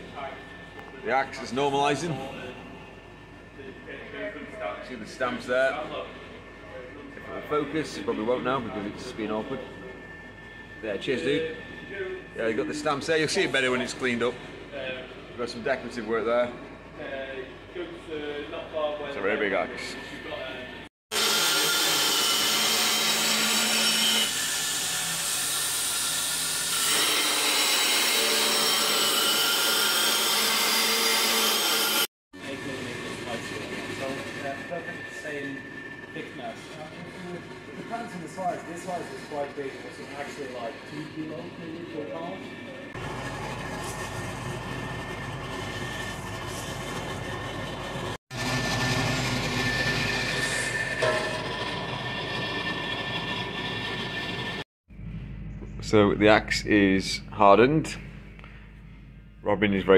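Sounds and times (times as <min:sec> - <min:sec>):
belt grinder grinding steel: 0:21.1 - 0:32.1
forge fire humming: 0:32.5 - 0:56.0.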